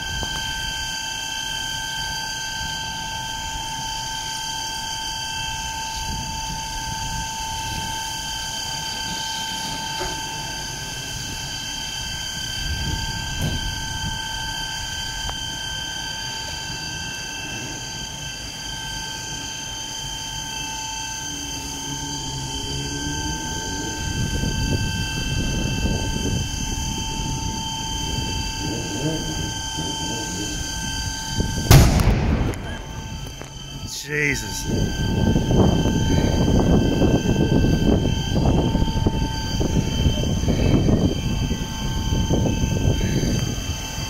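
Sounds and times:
fire engine pump droning: 0.0 - 44.0.

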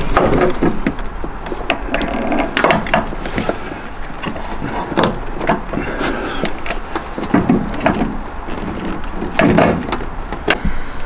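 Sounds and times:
hand tools clicking and clunking: 0.0 - 11.0.

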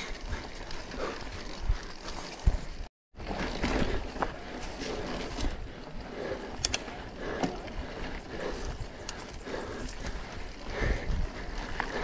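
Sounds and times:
bike clicks and rattles: 0.0 - 12.0
bike tyre and wind noise: 0.0 - 12.0.

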